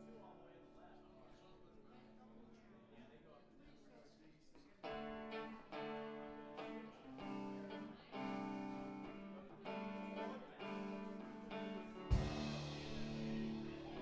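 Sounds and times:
guitar strumming chords: 4.8 - 14.0.

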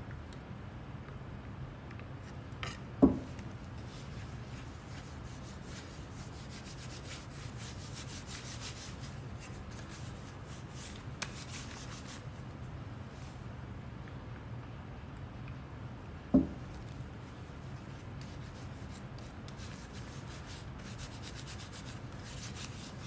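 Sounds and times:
gloved hand rubbing wood: 3.8 - 12.2.

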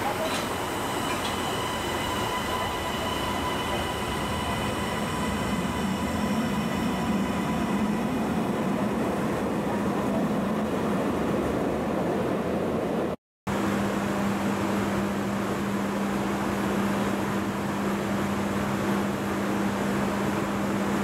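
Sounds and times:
train wheels rolling: 0.0 - 7.7
diesel railcar engine running: 0.0 - 11.6.

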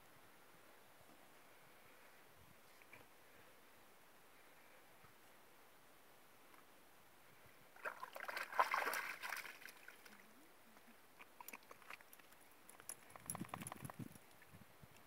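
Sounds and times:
dog splashing through water: 7.8 - 10.1.

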